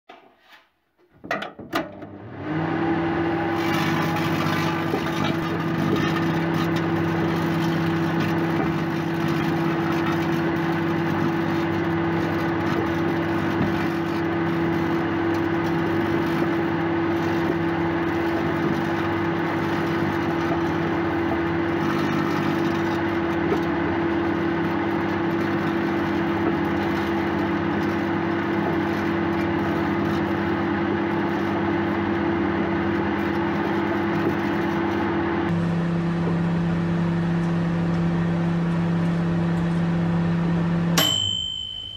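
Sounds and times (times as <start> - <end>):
microwave oven humming: 1.2 - 41.9
steel wool crackling: 3.6 - 35.4.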